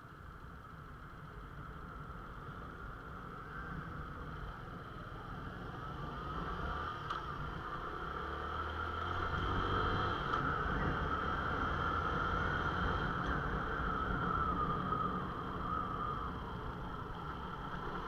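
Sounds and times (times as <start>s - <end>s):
motorcycle engine pulling away: 6.3s - 13.5s.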